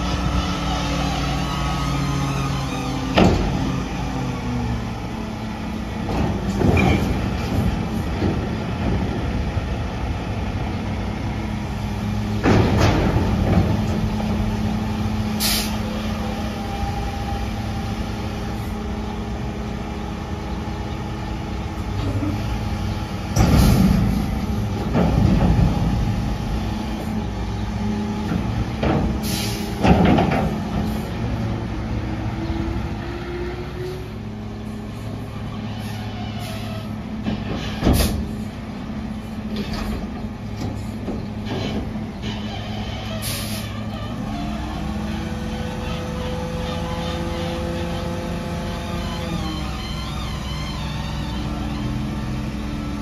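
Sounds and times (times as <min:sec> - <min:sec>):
diesel truck engine running: 0:00.0 - 0:53.0
loud metal bangs and clanks: 0:12.3 - 0:14.5, 0:23.2 - 0:26.8, 0:28.2 - 0:31.0, 0:37.2 - 0:38.5.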